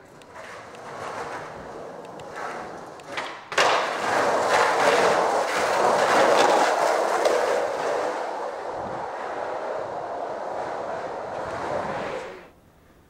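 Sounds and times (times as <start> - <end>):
skateboard clacks over cracks: 0.0 - 8.3
skateboard wheels rolling on pavement: 0.0 - 13.0.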